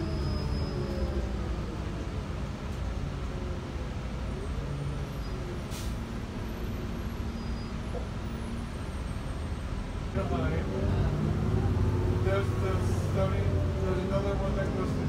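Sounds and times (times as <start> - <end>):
bus engine and road rumble: 0.0 - 15.0
air brake hiss: 5.6 - 6.2.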